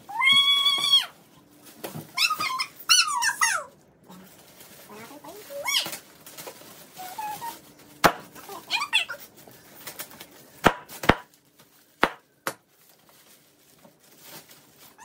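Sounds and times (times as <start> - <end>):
child squealing: 0.1 - 1.2
knocks on cardboard box: 10.7 - 11.3, 12.0 - 12.6.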